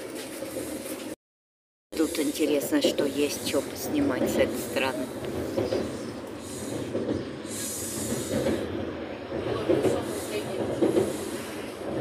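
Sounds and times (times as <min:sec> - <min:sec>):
train wheels rumbling: 0:02.0 - 0:12.0.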